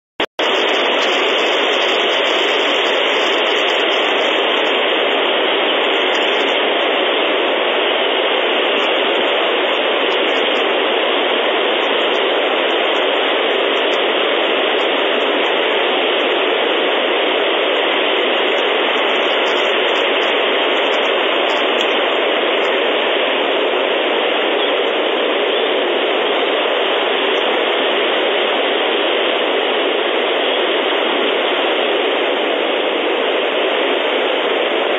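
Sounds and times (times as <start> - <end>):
steady static hiss: 0.4 - 34.9.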